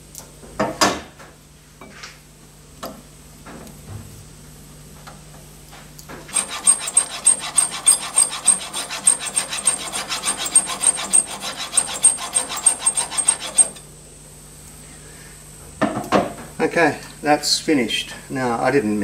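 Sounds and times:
hand file scraping metal: 6.3 - 13.8.

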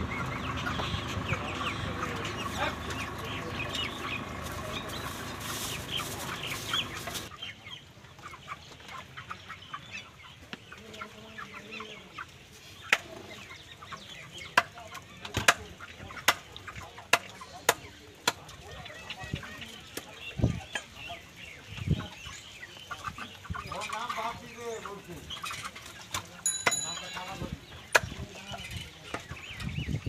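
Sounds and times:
chickens clucking: 0.0 - 30.0.

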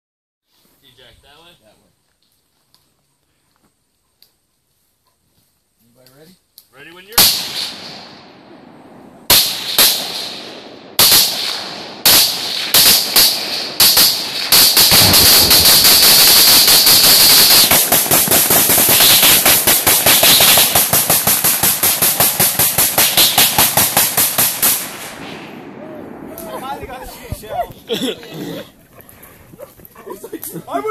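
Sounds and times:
rifle gunshots: 7.2 - 26.3
explosive target detonating: 14.8 - 19.4.

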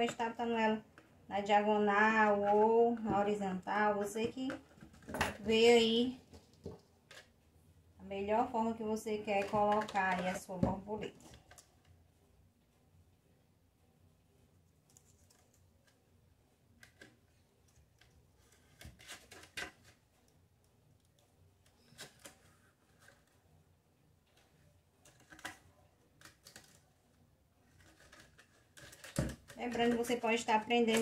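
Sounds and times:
stiff plastic clicking and crackling: 24.3 - 26.9, 27.7 - 31.0.

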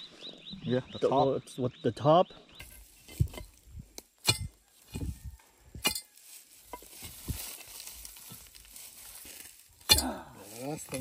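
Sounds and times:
digging stick knocking: 2.6 - 11.0
dry leaves rustling: 6.0 - 11.0.

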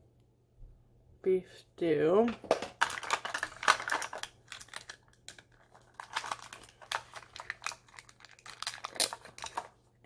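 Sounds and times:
plastic wrapping crinkling: 2.4 - 9.9.

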